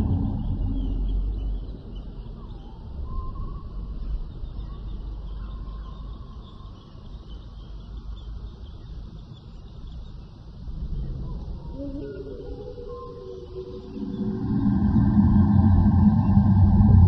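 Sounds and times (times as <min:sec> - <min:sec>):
steady low rumble: 0:00.0 - 0:05.3, 0:07.3 - 0:17.0
continuous high chirping: 0:00.0 - 0:17.0.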